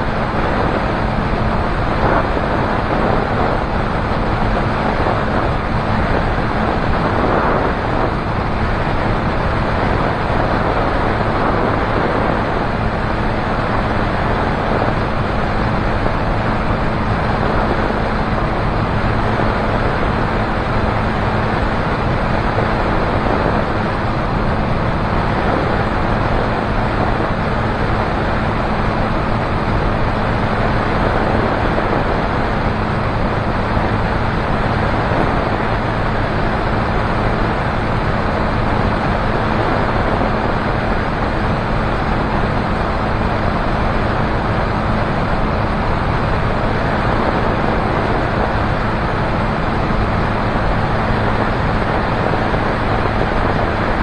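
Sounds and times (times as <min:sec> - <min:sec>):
propeller engine droning: 0:00.0 - 0:54.0
rush of wind: 0:00.0 - 0:54.0.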